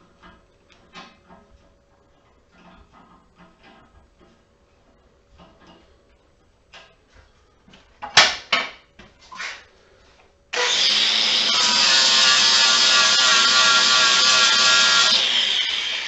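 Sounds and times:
grinder motor whining: 10.5 - 16.0.

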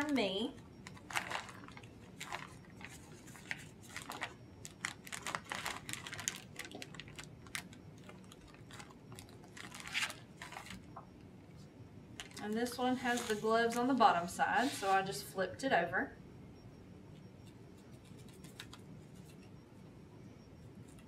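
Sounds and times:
plastic package crinkling: 0.9 - 10.8, 12.2 - 13.8.

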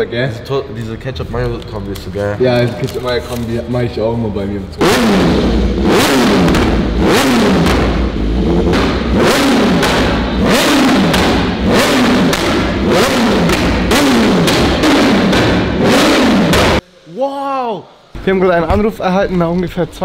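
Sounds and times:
motorcycle engine revving: 4.7 - 16.8.

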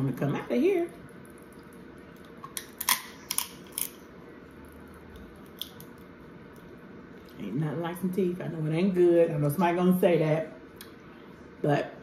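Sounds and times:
crab shell cracking: 2.2 - 4.0, 5.1 - 6.6.

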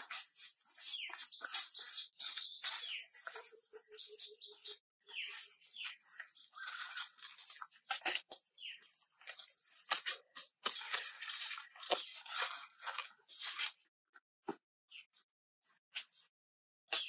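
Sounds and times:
high-pitched insect drone: 5.6 - 13.9
hands scraping and slapping mud: 9.2 - 13.8.

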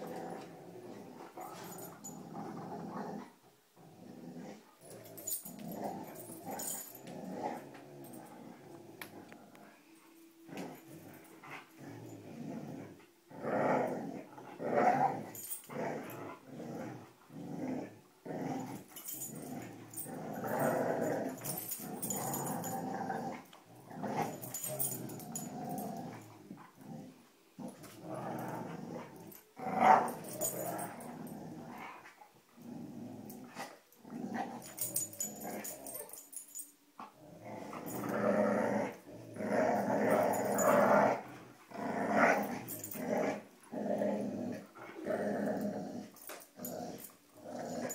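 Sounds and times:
dogs growling in play: 0.0 - 47.9.

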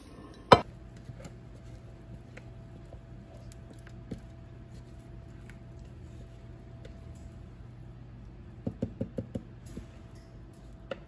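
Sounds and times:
steady low hum: 0.0 - 11.0
batter squishing and scraping: 0.6 - 7.1.

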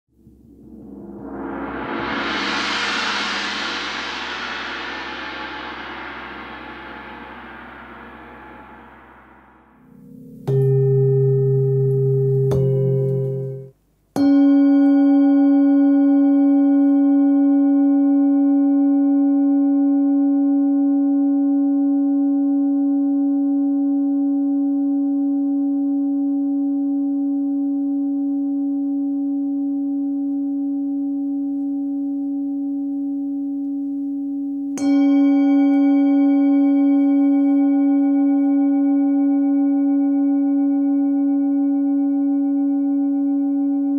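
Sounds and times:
short gong-like tone: 0.2 - 22.6, 29.7 - 43.9
singing bowl ringing: 0.2 - 43.9.

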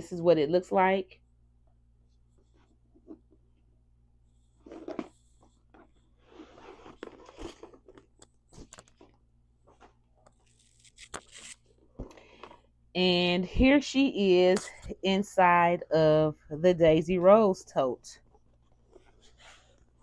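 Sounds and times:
rustling and scraping of bags: 4.6 - 12.7.

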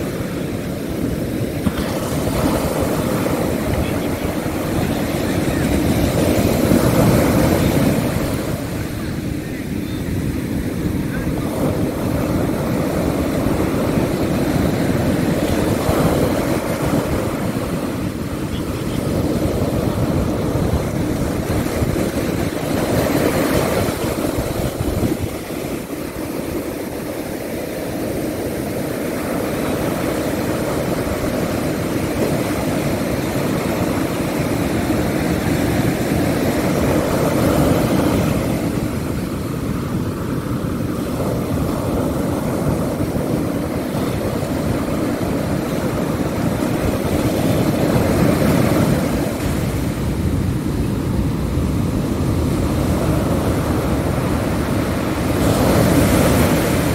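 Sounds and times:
ocean surf breaking: 0.0 - 56.9
wave crashing: 0.0 - 56.9
wind rumble on microphone: 0.0 - 56.9.

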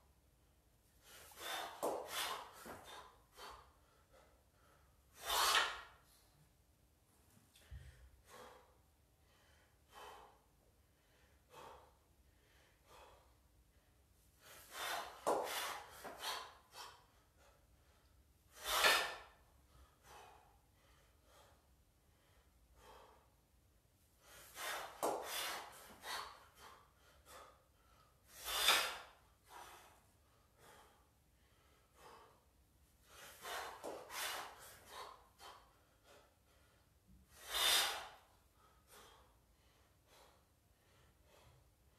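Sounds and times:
person breathing hard: 1.0 - 6.0, 7.5 - 23.5, 24.1 - 41.9
sharp forceful exhale: 5.2 - 5.8, 18.6 - 19.3, 28.4 - 29.8, 37.4 - 38.2.

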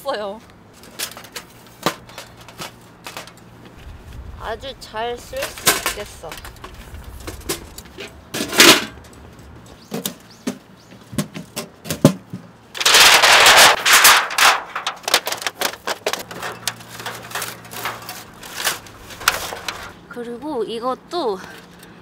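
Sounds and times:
sheet-metal stove clanks and rattling: 5.0 - 9.3, 12.8 - 20.0.

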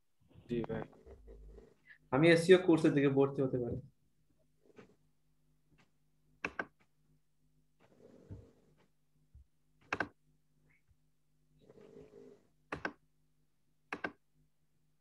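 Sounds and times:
computer mouse clicks: 5.8 - 6.9, 12.7 - 13.0, 13.9 - 14.2.

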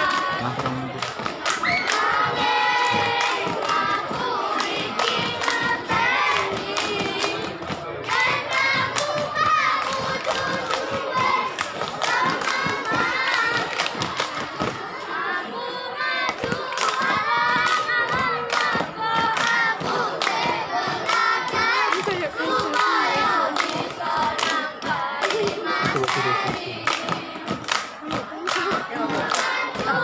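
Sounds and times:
hands clapping: 0.0 - 14.8, 16.3 - 30.0
children singing in unison: 0.0 - 30.0.

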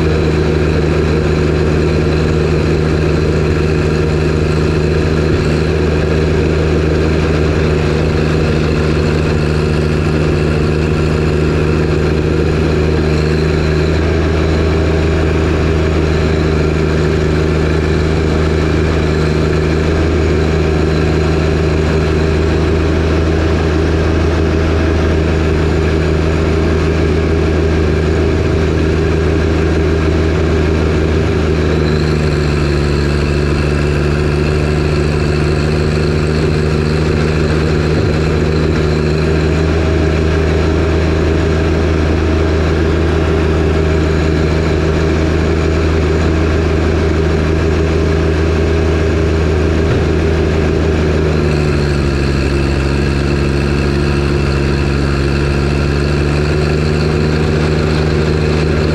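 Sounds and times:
tractor diesel engine running: 0.0 - 58.9.

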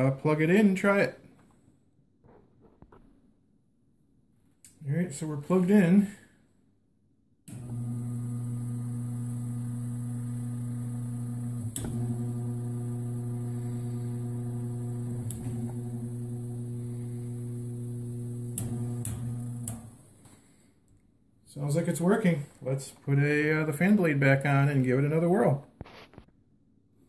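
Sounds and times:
fan motor humming: 7.5 - 20.2.

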